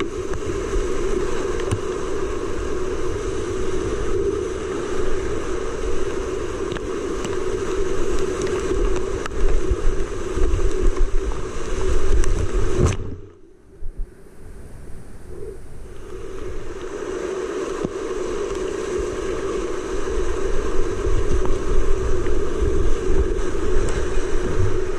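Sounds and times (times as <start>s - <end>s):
water buffeting microphone: 0.0s - 24.9s
whitewater rapids roaring: 16.0s - 24.9s.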